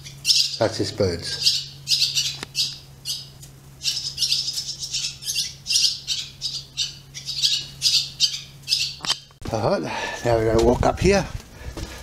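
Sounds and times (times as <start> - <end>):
birds squawking: 0.0 - 9.4.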